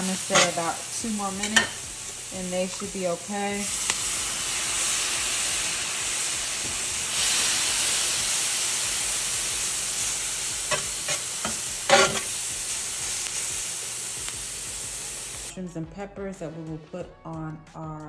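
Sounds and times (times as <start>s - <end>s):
peppers sizzling on a griddle: 0.0s - 15.5s
metal tongs clacking and scraping: 0.2s - 0.7s, 10.4s - 12.4s.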